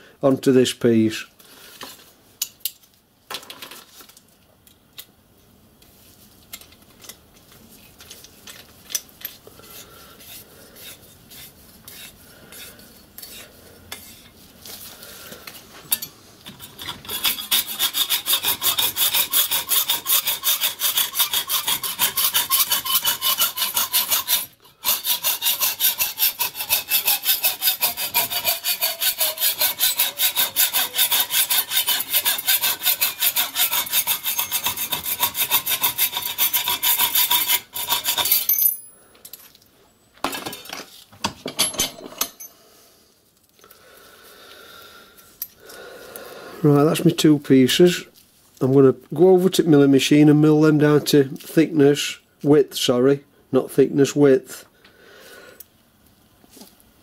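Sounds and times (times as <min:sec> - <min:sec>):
hacksaw cutting metal: 0:09.2 - 0:14.3, 0:15.9 - 0:38.6.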